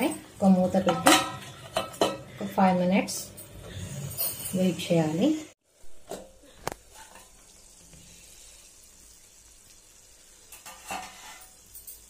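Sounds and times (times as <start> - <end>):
chutney bubbling in a pan: 5.6 - 12.0.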